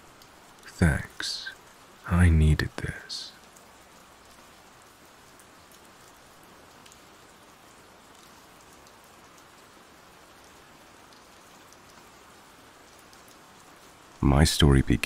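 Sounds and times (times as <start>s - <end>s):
rain hissing: 0.0s - 4.2s
raindrop ticks: 0.1s - 15.0s.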